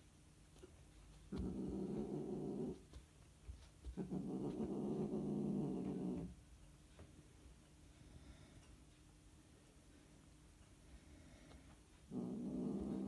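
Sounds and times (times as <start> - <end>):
cats growling: 1.3 - 2.9, 3.8 - 6.4, 12.1 - 13.0.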